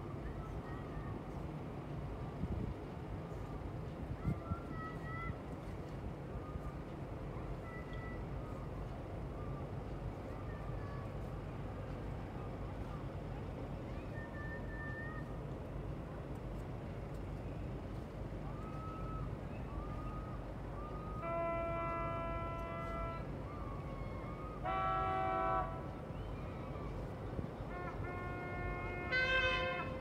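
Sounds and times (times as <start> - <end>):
boat horns blasting: 21.2 - 23.3, 24.6 - 26.0, 27.7 - 30.0.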